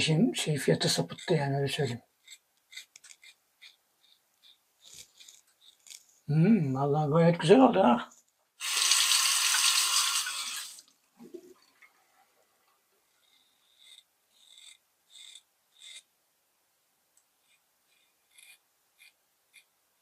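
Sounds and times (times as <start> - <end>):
water running from tap: 8.6 - 10.8.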